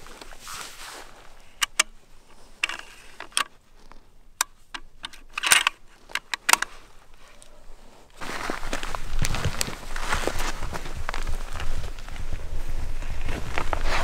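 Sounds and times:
rustle: 0.0s - 14.0s
scope turret clicks: 1.6s - 2.0s, 4.4s - 6.7s.

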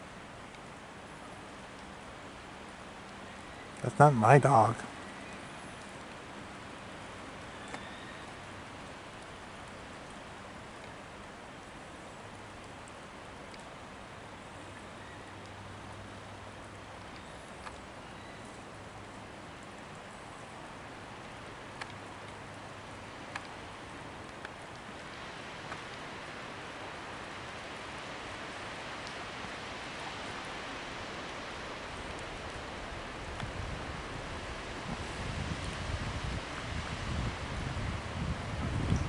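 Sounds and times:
outdoor hiss: 0.0s - 39.0s
faint clicks: 0.4s - 0.7s, 7.6s - 8.5s, 12.3s - 13.8s, 16.6s - 18.8s, 21.2s - 26.0s, 29.0s - 29.2s.

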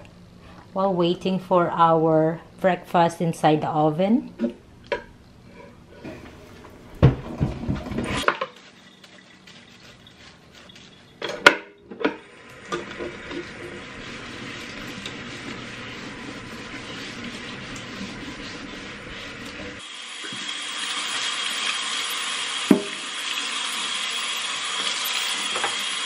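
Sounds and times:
kitchenware clattering in a sink: 7.1s - 13.3s
tap water running onto wood: 12.2s - 26.0s.

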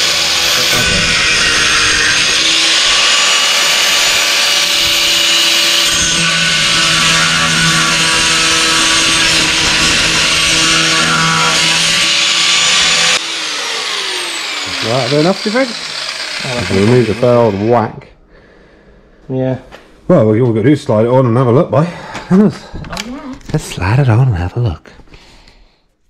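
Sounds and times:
angle grinder cutting plastic: 0.0s - 17.9s.

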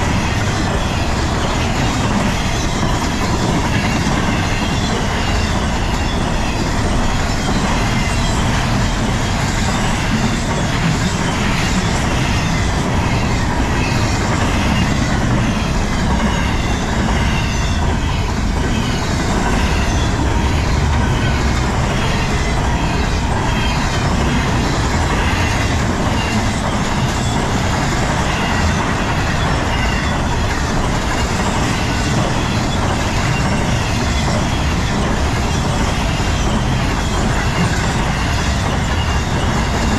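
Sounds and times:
freight train rolling past: 0.0s - 39.9s.

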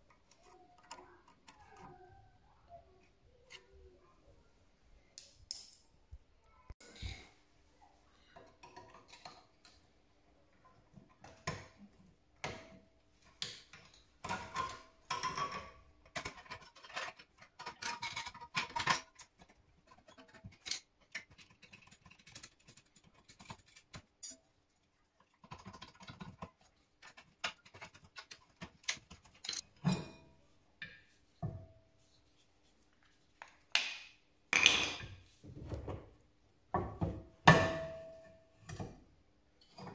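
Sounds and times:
metallic clicks and scrapes: 13.4s - 24.5s, 25.1s - 29.8s.

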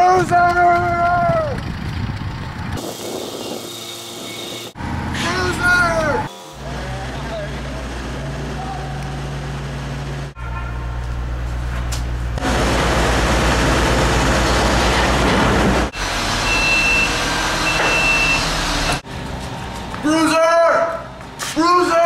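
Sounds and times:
construction machinery engines: 0.4s - 22.0s
lift motion alarm beeps: 16.4s - 19.0s.

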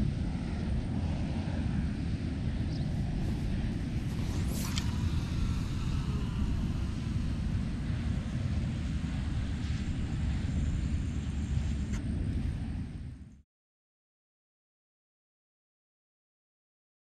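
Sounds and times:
wind buffeting microphone: 0.0s - 13.4s
fishing reel spool whine: 2.6s - 12.0s
fishing rod swish: 3.2s - 5.8s.

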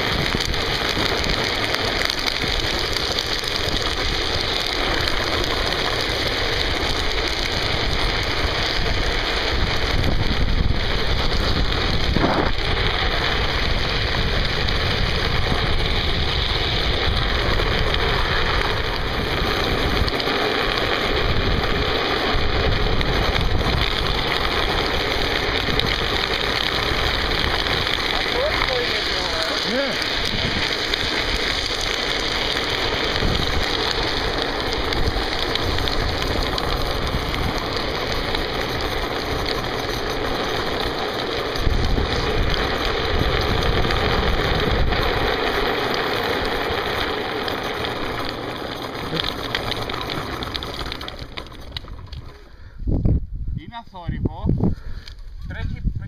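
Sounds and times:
wheels hissing on asphalt: 0.0s - 56.0s
wind rushing over microphone: 6.6s - 20.2s, 21.1s - 31.9s, 33.1s - 38.2s, 52.7s - 56.0s.

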